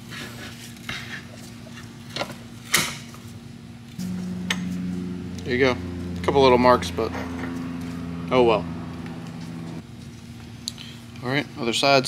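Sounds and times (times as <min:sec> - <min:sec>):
steady low hum: 0:01.6 - 0:11.2.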